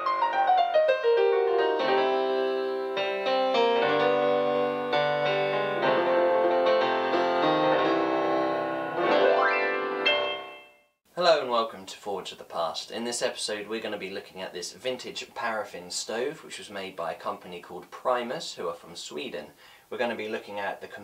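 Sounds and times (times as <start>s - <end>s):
instrumental intro music: 0.0s - 11.0s.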